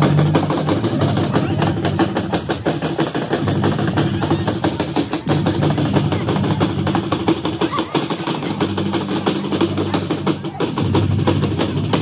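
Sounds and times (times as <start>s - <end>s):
fast busy drum beat: 0.0s - 12.0s.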